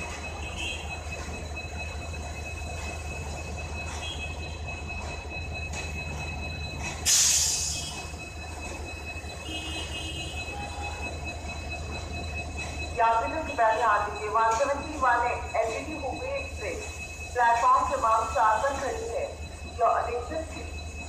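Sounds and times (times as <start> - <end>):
diesel train engine rumble: 0.0 - 21.0
loud air hiss: 7.1 - 7.8.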